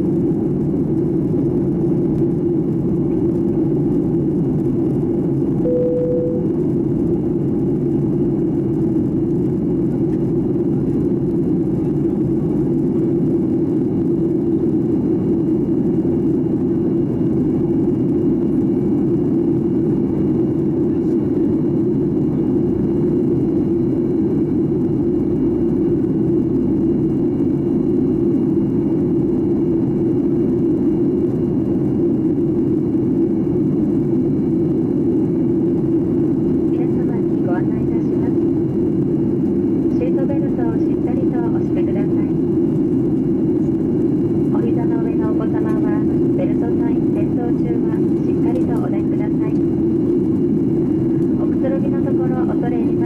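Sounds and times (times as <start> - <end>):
airliner cabin rumbling hum: 0.0 - 53.0
faint high whine: 5.6 - 6.8.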